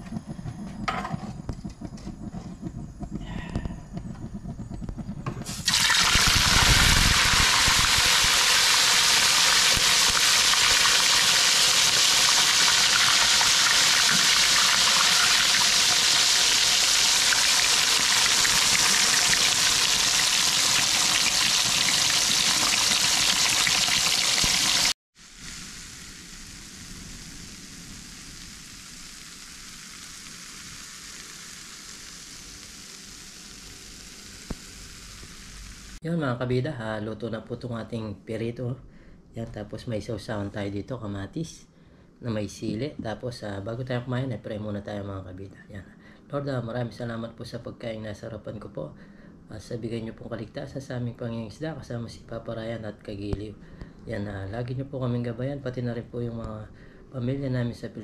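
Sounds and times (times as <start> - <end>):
fish sizzling in hot oil: 5.4 - 36.0.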